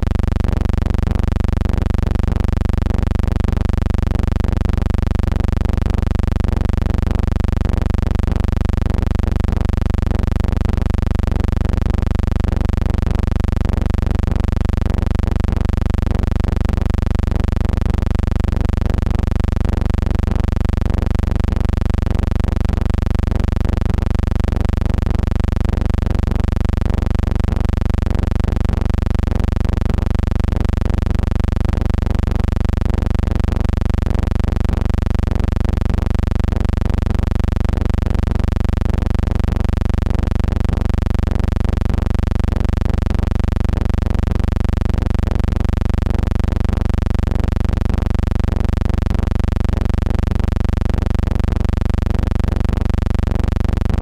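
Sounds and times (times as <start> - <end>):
electrical hum: 0.0 - 54.0.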